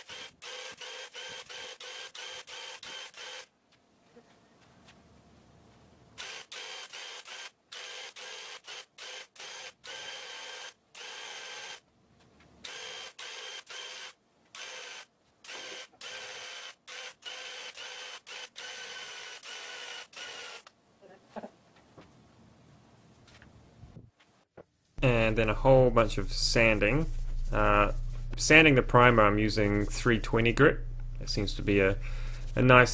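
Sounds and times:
paint sprayer motor whine: 0:25.5 - 0:32.9.

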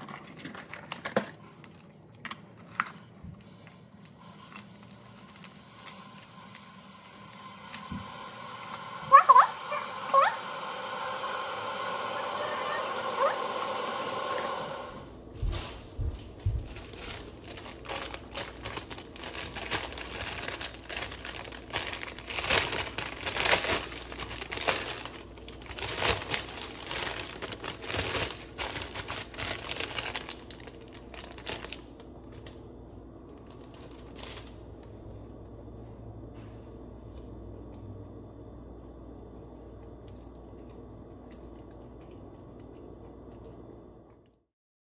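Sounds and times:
plastic bag crinkling: 0:00.0 - 0:07.9, 0:15.4 - 0:32.6, 0:33.3 - 0:34.8.

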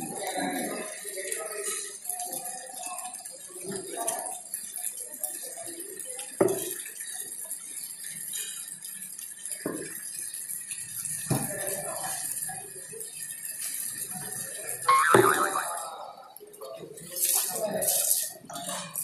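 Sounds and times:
background noise: 0:00.0 - 0:19.0
faint clatter: 0:01.6 - 0:14.6.

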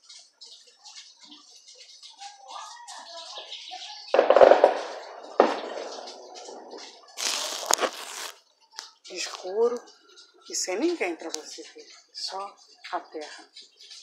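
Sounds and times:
phone handling rustling and scraping: 0:07.2 - 0:08.3.

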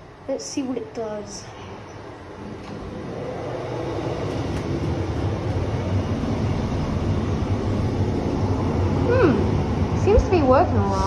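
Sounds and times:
train rumbling: 0:00.0 - 0:11.0.

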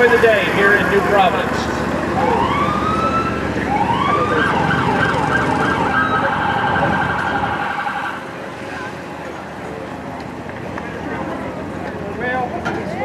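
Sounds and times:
emergency vehicle siren: 0:00.0 - 0:08.8.

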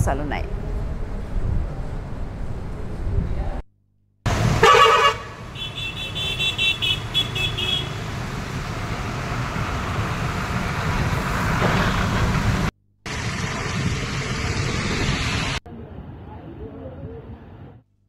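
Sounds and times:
traffic on a wet street: 0:04.3 - 0:17.8
vehicle horn beeping rapidly: 0:04.6 - 0:08.1.

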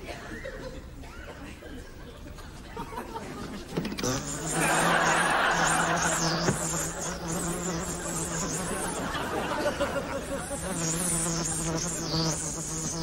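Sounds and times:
insect buzzing: 0:03.8 - 0:13.0
audience laughter: 0:04.4 - 0:07.3, 0:08.0 - 0:10.9.

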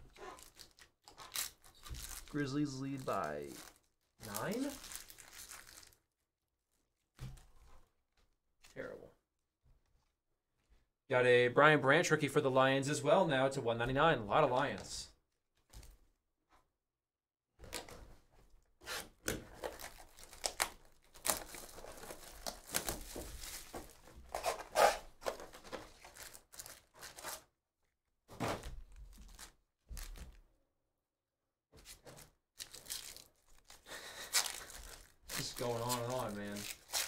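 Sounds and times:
foil packs crinkling: 0:00.1 - 0:06.0, 0:19.6 - 0:27.4, 0:32.1 - 0:37.0
foil pack tearing open: 0:19.6 - 0:27.4, 0:32.6 - 0:37.0.

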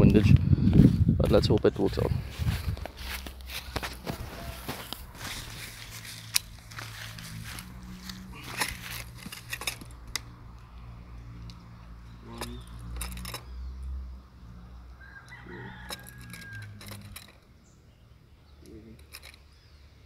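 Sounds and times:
pellets being handled: 0:02.9 - 0:10.0.

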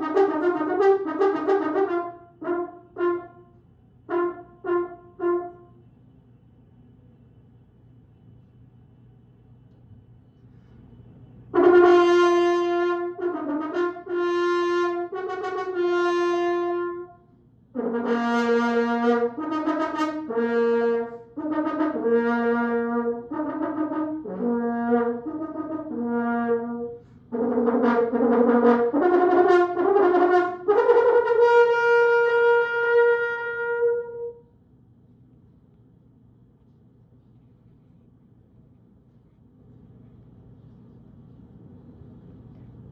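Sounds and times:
solo french horn: 0:00.0 - 0:03.5, 0:04.1 - 0:05.8, 0:11.6 - 0:17.2, 0:17.8 - 0:34.5.

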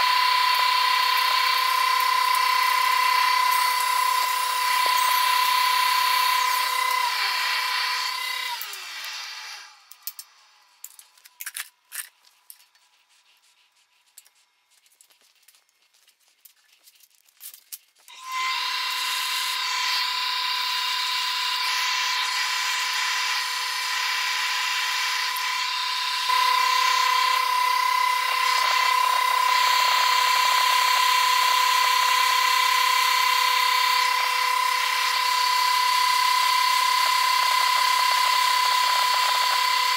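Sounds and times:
angle grinder whining: 0:00.0 - 0:11.4, 0:18.1 - 0:39.9.

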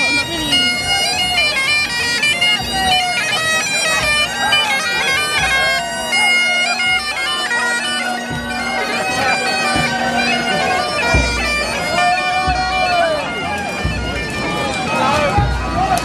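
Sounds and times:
bagpipes playing with drone: 0:00.0 - 0:16.0
bass drum thumping: 0:08.2 - 0:13.0, 0:15.4 - 0:15.9.

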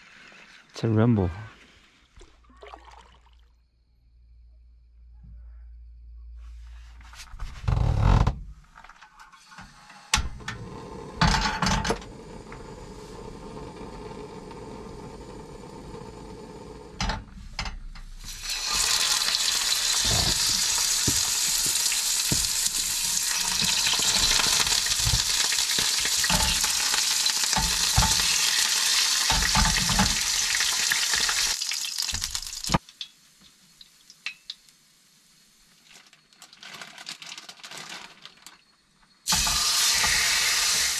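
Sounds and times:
fish sizzling in hot oil: 0:18.2 - 0:36.4, 0:39.3 - 0:40.9
pan and stove clattering: 0:18.4 - 0:31.3.

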